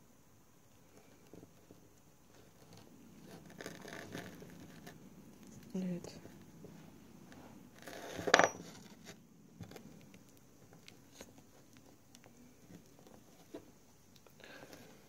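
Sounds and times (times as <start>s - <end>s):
light ticks and handling noises: 8.5s - 15.0s.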